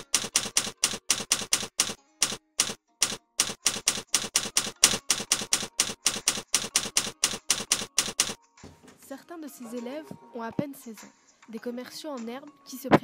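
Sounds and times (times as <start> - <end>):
typewriter keystroke clacks: 0.0 - 8.4.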